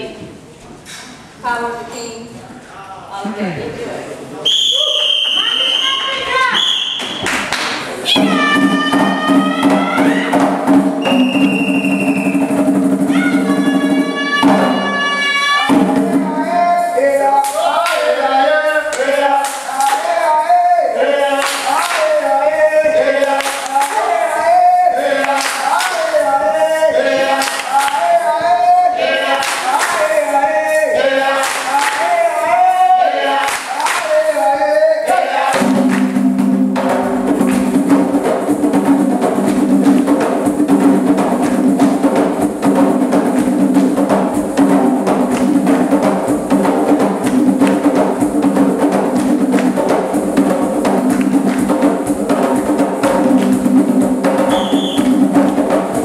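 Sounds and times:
hand claps: 7.0s - 7.9s, 17.4s - 18.1s, 18.9s - 20.1s, 21.4s - 22.2s, 23.3s - 24.1s, 25.2s - 26.2s, 27.4s - 28.1s, 29.4s - 30.2s, 31.4s - 32.1s, 33.4s - 34.1s, 35.8s - 36.2s, 37.4s - 37.8s, 45.3s - 45.6s, 49.2s - 49.9s, 51.1s - 51.8s, 53.3s - 53.6s
hand drums driving rhythm: 7.1s - 18.2s, 35.4s - 56.0s
group singing a chant: 12.0s - 39.0s.

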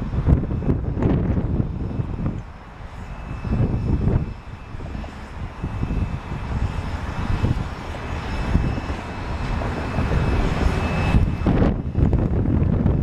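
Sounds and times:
steam locomotive exhaust chuffs: 0.0s - 13.0s
steam hissing: 1.8s - 11.9s.

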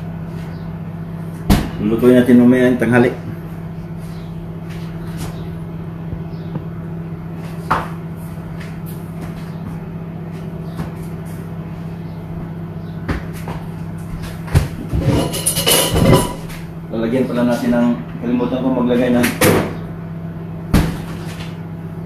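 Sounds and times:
steady low hum: 0.0s - 22.0s
kitchen items knocking: 14.6s - 16.5s.

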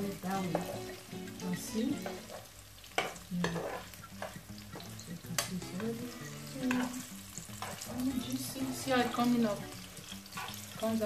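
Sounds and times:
frying sizzle: 0.0s - 11.0s
spoon stirring in frying pan: 0.0s - 11.0s
spoon clicking on pan: 2.0s - 5.6s, 6.5s - 7.9s.

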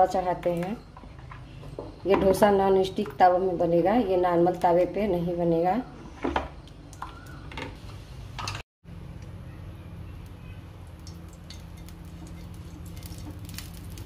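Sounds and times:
low steady hum: 0.0s - 14.0s
brush spreading oil on pan: 11.5s - 14.0s.

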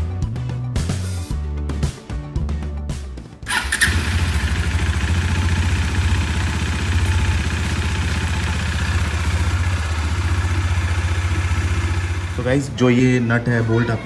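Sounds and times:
motorcycle engine starting and idling: 3.4s - 14.0s.

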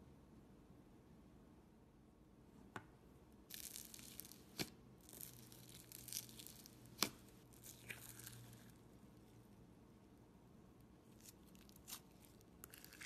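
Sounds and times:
slime popping: 3.5s - 8.8s
bead-filled slime crackling: 3.5s - 9.0s, 11.1s - 13.0s.

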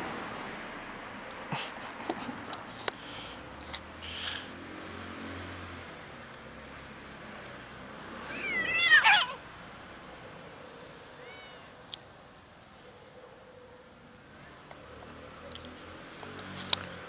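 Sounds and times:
cat meowing: 8.3s - 9.4s, 11.2s - 11.8s.

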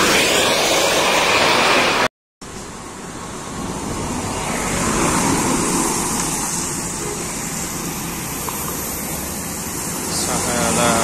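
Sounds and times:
vehicles passing on damp road: 0.0s - 11.0s.

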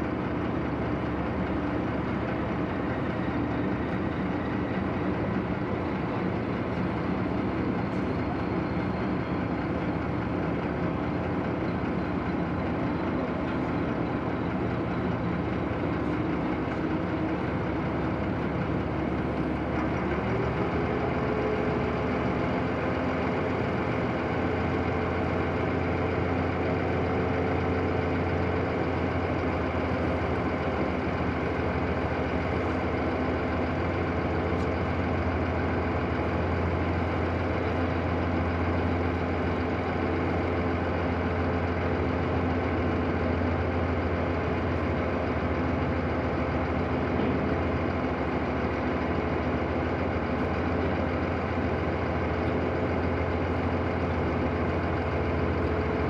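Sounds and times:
ship diesel engines droning: 0.0s - 56.0s.

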